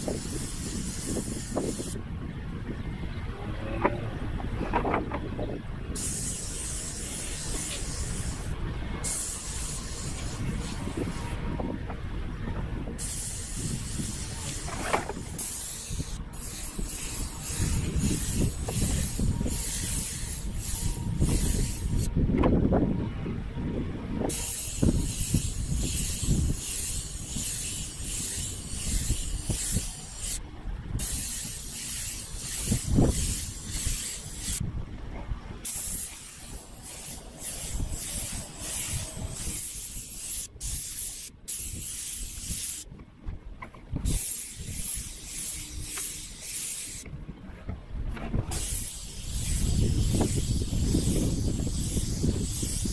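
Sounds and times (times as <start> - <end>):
paint spray gun hissing: 0.0 - 2.0, 6.0 - 11.1, 13.0 - 22.1, 24.3 - 30.4, 31.0 - 34.6, 35.7 - 42.9, 44.1 - 47.0, 48.5 - 52.9.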